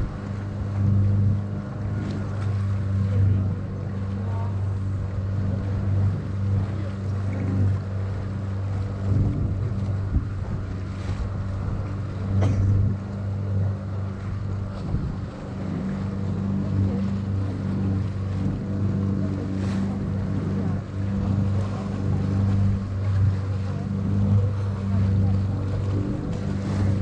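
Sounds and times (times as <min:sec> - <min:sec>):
boat engine humming: 0:00.0 - 0:27.0
water washing along hull: 0:00.0 - 0:27.0
wind on microphone: 0:00.0 - 0:27.0.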